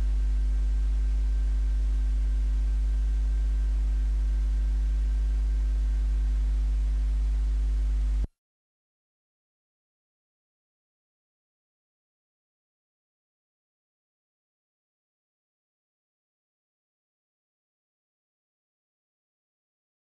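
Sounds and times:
low electrical mains hum: 0.0 - 8.3.

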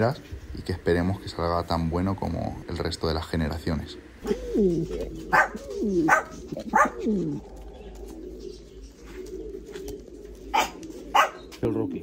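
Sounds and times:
pigeon cooing: 3.7 - 12.0.

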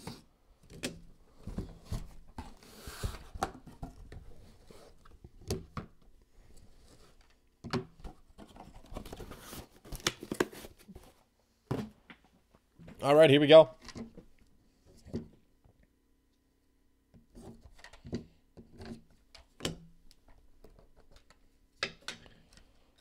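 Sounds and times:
cardboard box rustling: 8.1 - 11.2.

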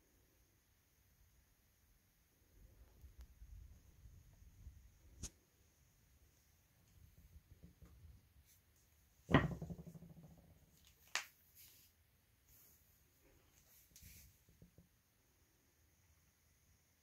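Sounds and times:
toy figure knocking on board: 9.3 - 10.2.

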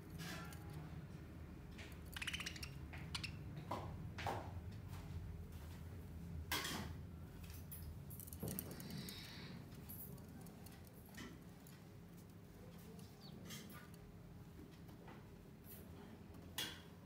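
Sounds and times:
birds clicking and tapping on strings: 1.7 - 3.9.

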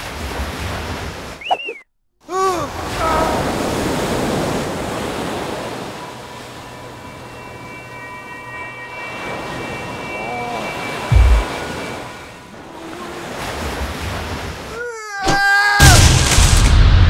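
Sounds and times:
water rushing and churning: 0.0 - 16.8
wailing tone: 5.8 - 13.4.

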